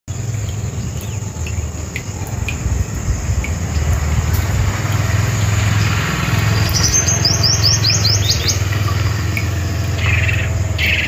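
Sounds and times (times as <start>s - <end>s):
insect hiss: 0.1s - 11.0s
low rumble: 0.5s - 7.4s.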